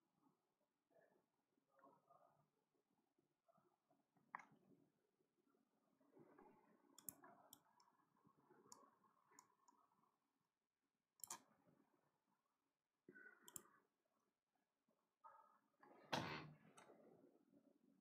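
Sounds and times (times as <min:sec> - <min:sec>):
faint clicks: 0:11.2 - 0:11.5.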